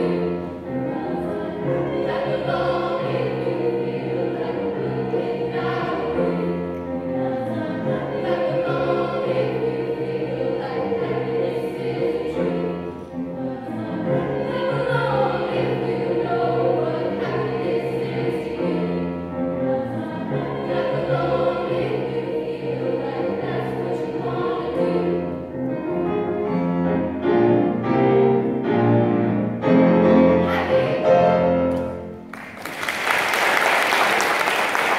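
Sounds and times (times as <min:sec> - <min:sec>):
women's choir singing in harmony: 0:00.0 - 0:34.9
audience applauding: 0:32.3 - 0:34.9.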